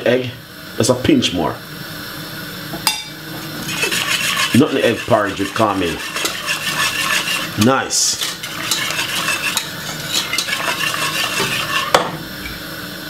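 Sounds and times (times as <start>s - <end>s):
whisk swishing porridge: 3.5s - 12.1s
whisk clinking metal pot: 3.6s - 12.1s.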